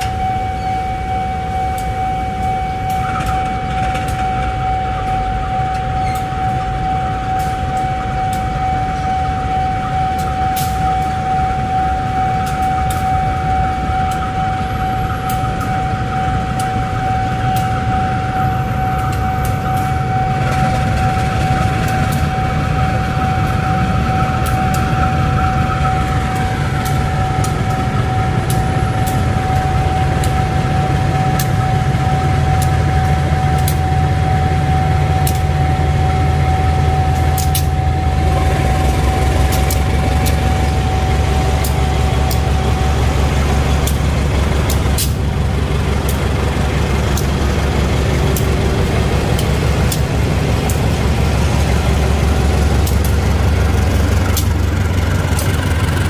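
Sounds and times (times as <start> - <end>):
diesel locomotive engine rumble: 0.0 - 56.0
thin steady whine: 0.0 - 56.0
sharp clicks: 52.8 - 53.2.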